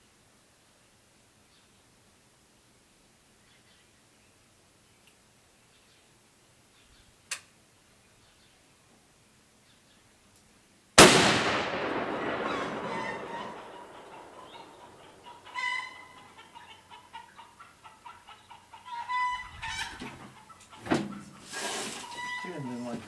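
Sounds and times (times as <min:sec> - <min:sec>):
rifle shot: 0:11.0 - 0:15.3
fowl clucking and calling: 0:12.1 - 0:23.0.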